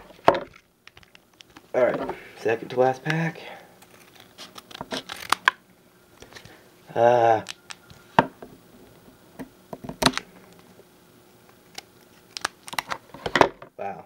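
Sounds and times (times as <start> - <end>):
scissors cutting foil: 3.8 - 5.5
foil pack crinkling: 3.8 - 5.6, 11.6 - 13.2.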